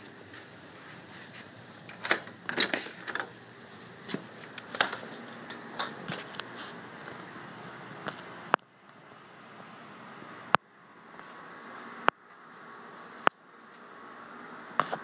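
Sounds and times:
sliding glass door opening: 1.8 - 3.4, 4.0 - 7.3.

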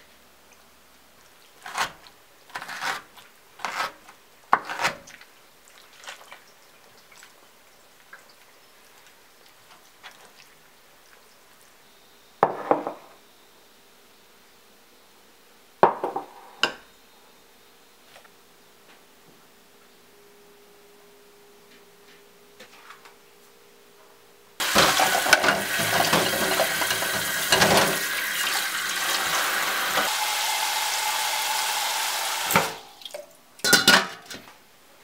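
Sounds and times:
scraping on wooden cutting board: 1.6 - 5.1.

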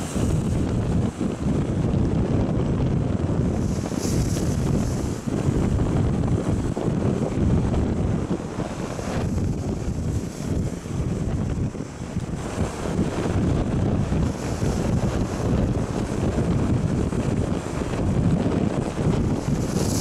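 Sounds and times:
rough surf rumbling: 0.0 - 20.0
wind buffeting microphone: 0.0 - 20.0
wave breaking on rocks: 3.5 - 6.7.

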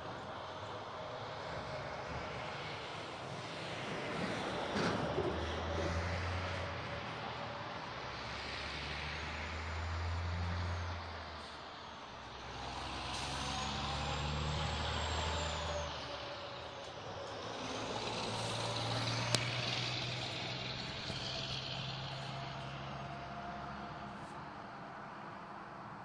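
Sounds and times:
passing road traffic rumble: 0.0 - 26.0.

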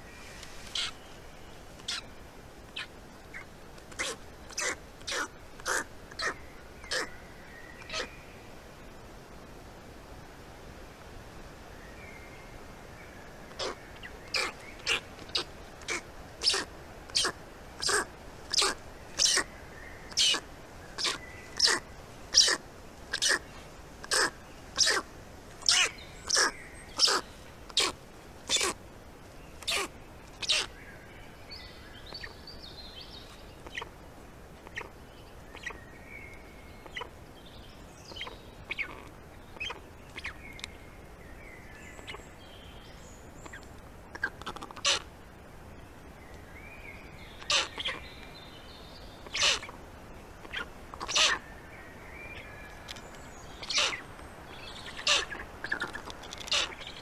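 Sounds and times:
faint songbird song: 0.0 - 10.5, 11.3 - 57.0
stork chicks begging calls: 2.7 - 7.1, 13.5 - 19.5, 20.1 - 23.4, 24.0 - 28.8, 29.6 - 30.8, 47.4 - 48.0, 49.2 - 49.8, 50.4 - 51.4, 53.6 - 54.2, 54.9 - 57.0.

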